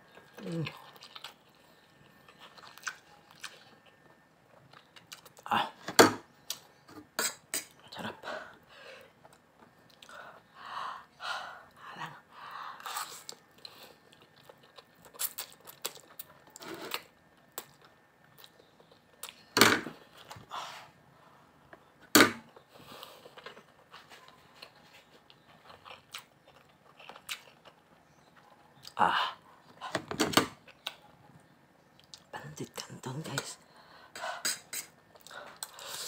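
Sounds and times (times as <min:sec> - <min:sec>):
man chewing: 0:00.1 - 0:05.4, 0:09.2 - 0:10.4, 0:12.8 - 0:20.4, 0:22.5 - 0:29.0, 0:34.4 - 0:36.0.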